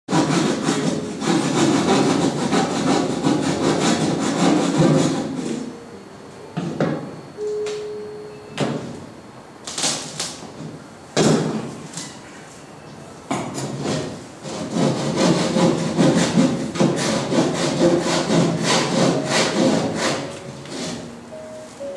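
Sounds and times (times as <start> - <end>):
brief held tone: 5.6 - 9.1, 20.3 - 21.9.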